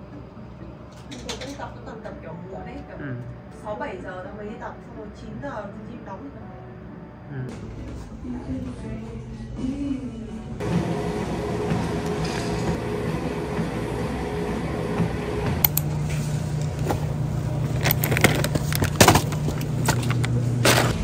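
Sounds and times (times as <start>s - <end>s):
vehicle engine humming: 7.5s - 21.0s.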